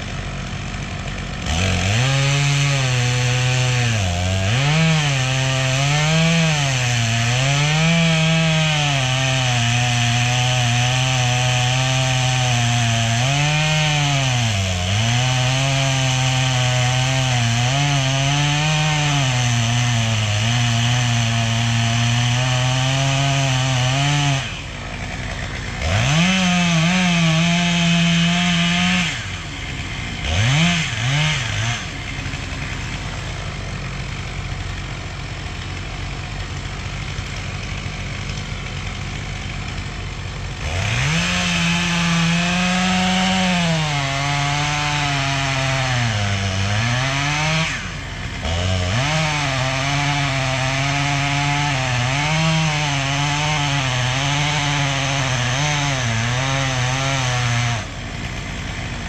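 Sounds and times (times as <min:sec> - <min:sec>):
chainsaw cutting wood: 0:00.0 - 0:59.0
chainsaw revving: 0:00.0 - 0:59.0.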